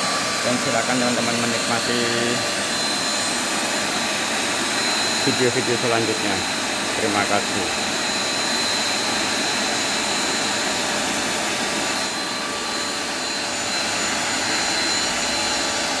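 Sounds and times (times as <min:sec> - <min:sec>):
stick vacuum cleaner running: 0:00.0 - 0:16.0.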